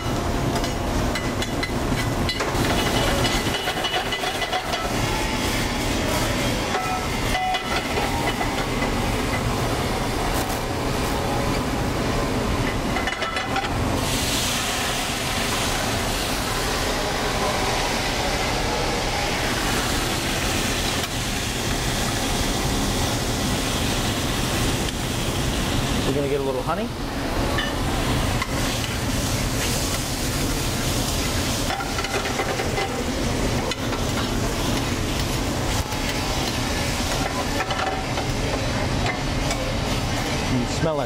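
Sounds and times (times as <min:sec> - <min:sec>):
shallots sizzling in a pan: 0:27.8 - 0:40.5.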